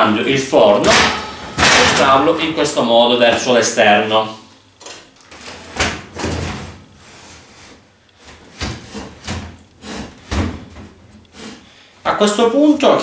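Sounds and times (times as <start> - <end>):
oven casing scraping: 0.6 - 3.6, 5.0 - 11.9.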